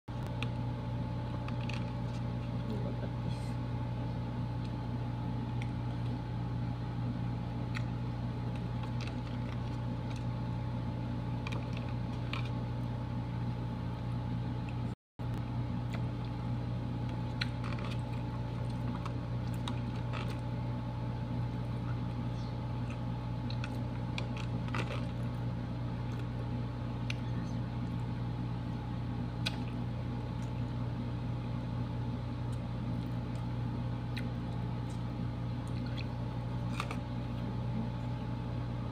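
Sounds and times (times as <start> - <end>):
low mechanical hum: 0.1 - 38.9
faint eating sounds: 15.7 - 20.6, 21.4 - 28.4, 32.3 - 38.5.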